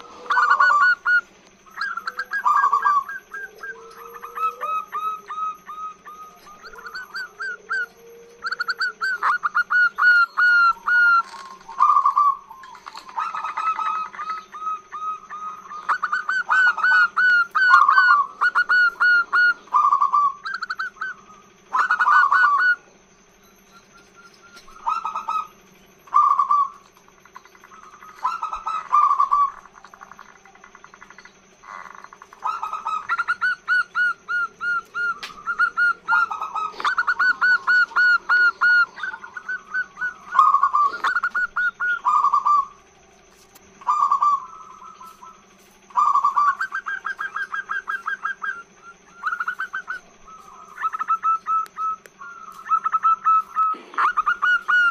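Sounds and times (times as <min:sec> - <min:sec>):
dove cooing: 0:00.0 - 0:23.0, 0:23.7 - 0:54.9.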